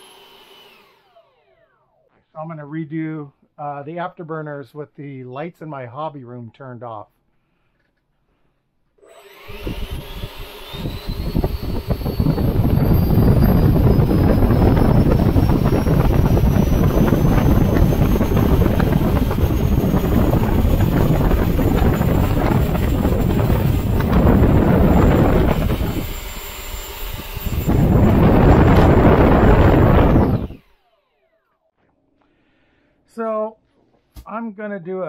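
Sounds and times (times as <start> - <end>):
electric ducted fan whine: 9.2 - 30.9.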